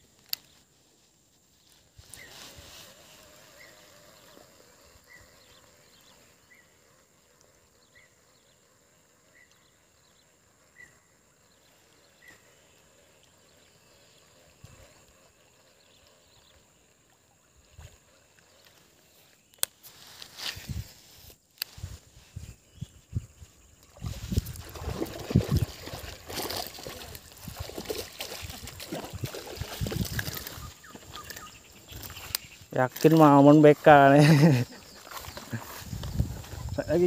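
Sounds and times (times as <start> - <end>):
steady high hiss: 0.0 - 24.5, 30.6 - 37.0
brief rustle: 19.5 - 22.6.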